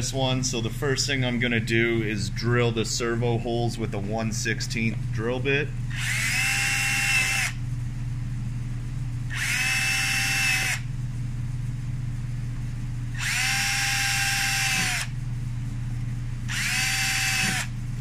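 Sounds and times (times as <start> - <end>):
power drill whining: 5.9 - 7.6, 9.3 - 10.8, 13.2 - 15.1, 16.5 - 17.7.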